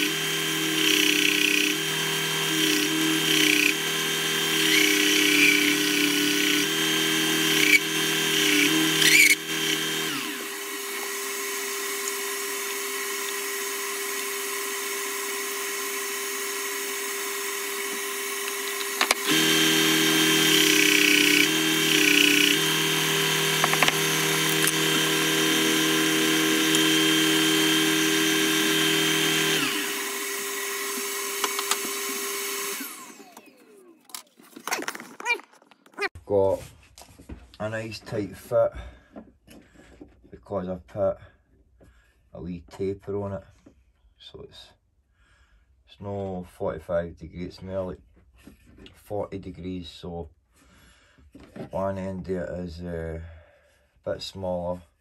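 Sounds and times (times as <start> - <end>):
wood grinding against sanding belt: 0.0 - 33.6
sander motor running: 0.0 - 35.4.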